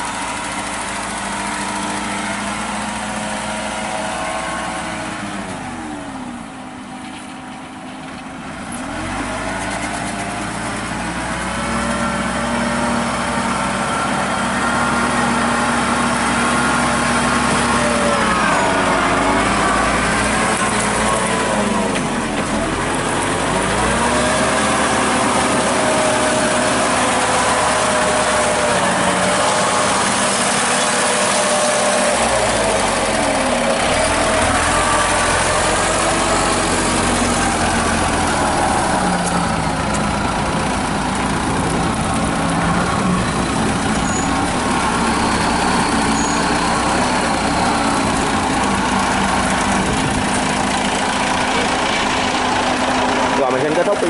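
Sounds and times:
combine harvester engine running: 0.0 - 54.0.

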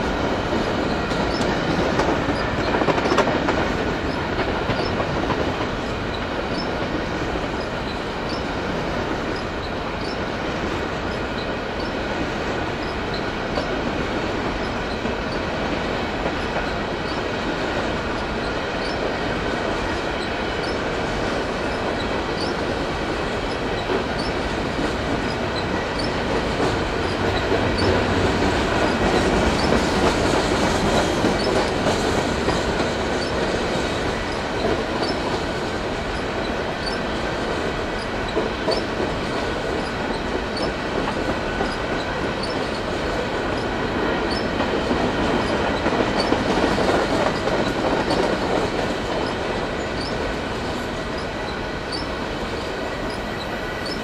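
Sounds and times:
train wheels rumbling on rails: 0.0 - 54.0
faint thin squeal: 51.9 - 52.1.

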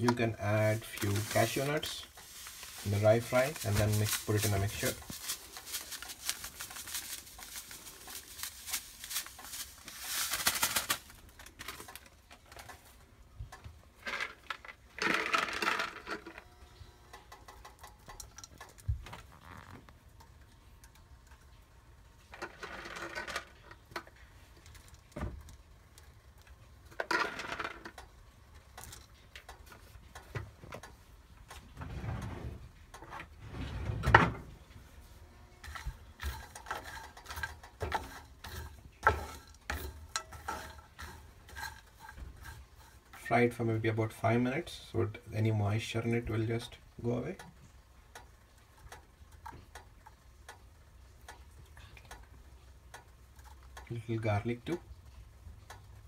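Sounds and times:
seeds pattering into a frying pan: 0.4 - 12.0
plastic packets crinkling: 0.4 - 12.3.

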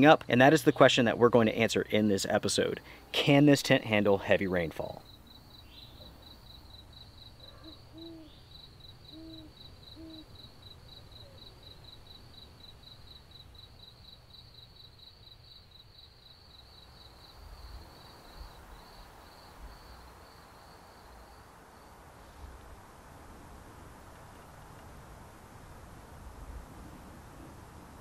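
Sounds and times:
cricket chirping: 0.0 - 22.4
soft hiss: 0.0 - 28.0.

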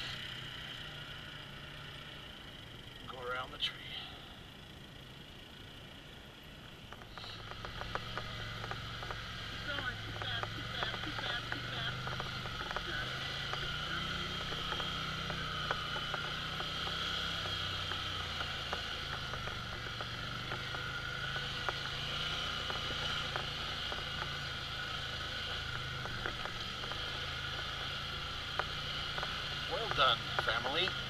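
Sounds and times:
quad bike engine running: 0.0 - 31.0
steady whine: 0.0 - 31.0
small clicks and knocks: 6.8 - 31.0.

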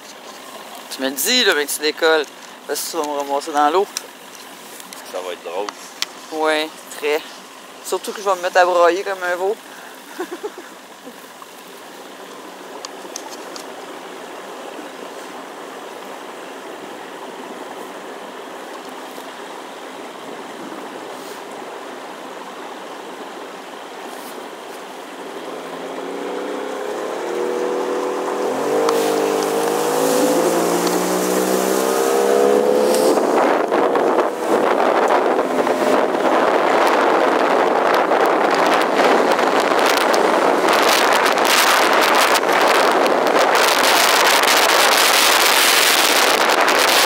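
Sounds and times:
water rushing: 0.0 - 47.0
motorboat engine: 9.4 - 47.0.

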